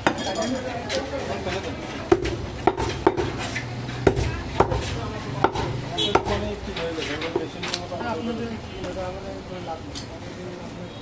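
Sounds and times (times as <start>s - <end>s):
knife chopping meat on wooden block: 2.1s - 3.4s, 4.0s - 6.6s.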